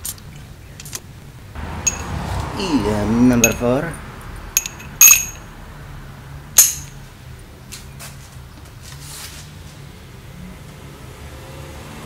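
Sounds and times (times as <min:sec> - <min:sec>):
metal hand tools clinking: 0:01.8 - 0:02.2, 0:03.4 - 0:03.8, 0:04.6 - 0:05.5, 0:06.6 - 0:07.0.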